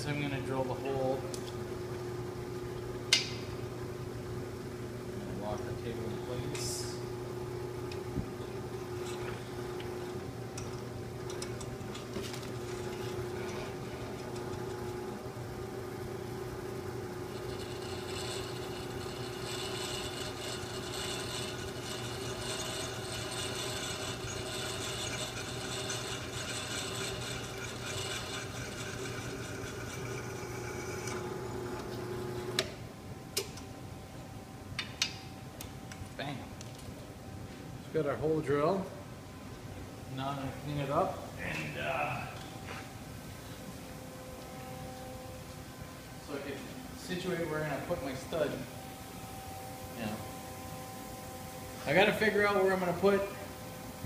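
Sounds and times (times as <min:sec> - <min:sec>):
drill press motor hum: 0:03.6 - 0:32.8
drill bit cutting metal: 0:17.3 - 0:31.4.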